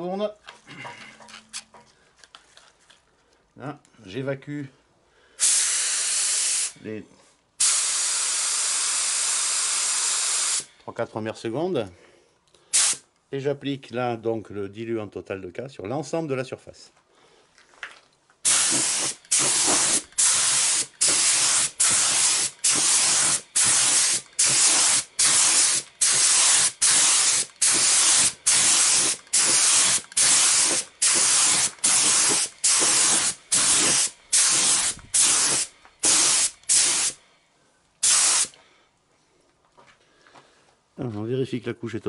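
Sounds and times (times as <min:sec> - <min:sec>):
spray gun hissing in short bursts: 0:05.4 - 0:06.8, 0:07.6 - 0:10.8, 0:12.7 - 0:13.1, 0:18.4 - 0:37.2, 0:38.0 - 0:38.6.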